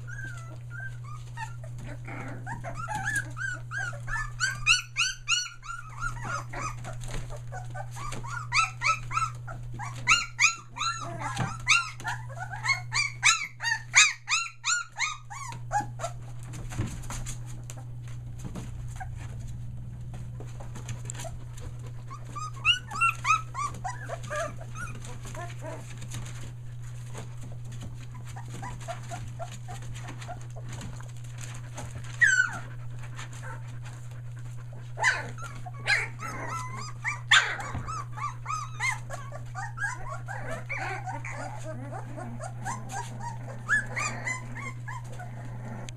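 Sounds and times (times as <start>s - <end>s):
puppy squealing: 0.0s - 16.2s, 22.0s - 25.9s, 32.1s - 32.8s, 35.0s - 45.9s
puppies whimpering: 0.0s - 45.9s
steady low hum: 0.0s - 45.9s.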